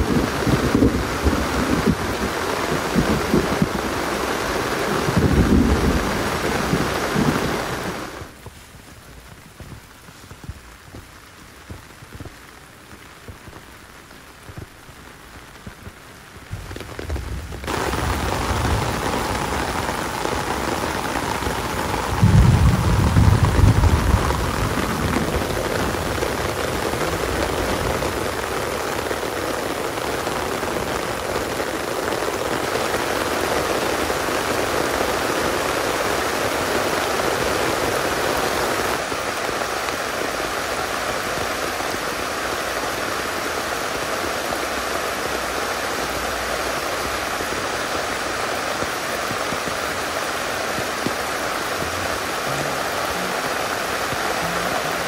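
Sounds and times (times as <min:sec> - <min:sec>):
heavy rain falling: 0:00.0 - 0:55.0
low rumbles: 0:16.4 - 0:20.6.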